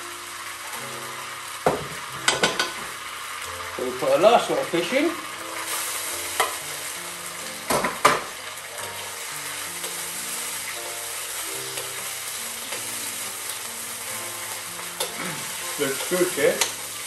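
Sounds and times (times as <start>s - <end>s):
fish sizzling in oil: 0.0s - 17.0s
faint background music: 0.1s - 17.0s
utensil clicking against wok: 15.0s - 15.2s.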